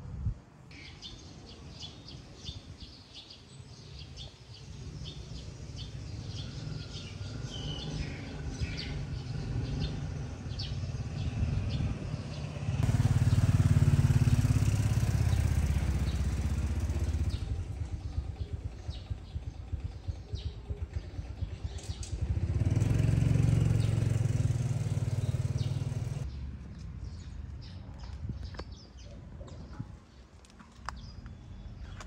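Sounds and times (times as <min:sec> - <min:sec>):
small birds chirping: 0:00.7 - 0:32.0
traffic engine rumble: 0:04.4 - 0:28.4
vehicle engine running: 0:09.2 - 0:26.4.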